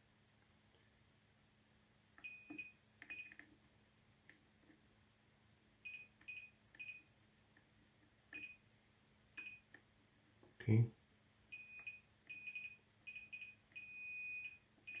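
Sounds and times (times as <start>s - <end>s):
multimeter continuity beeps: 2.2s - 3.4s, 5.8s - 7.1s, 8.3s - 8.6s, 9.4s - 9.8s, 11.5s - 15.0s.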